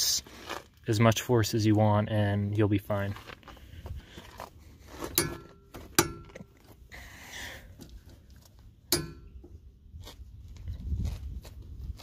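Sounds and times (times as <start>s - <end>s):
sharp metallic clinks: 8.9s - 9.4s.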